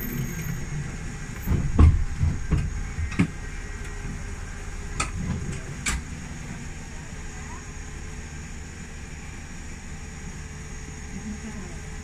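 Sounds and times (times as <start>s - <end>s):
tram low rumble: 0.0s - 12.0s
carriage knocks and clunks: 1.4s - 3.4s.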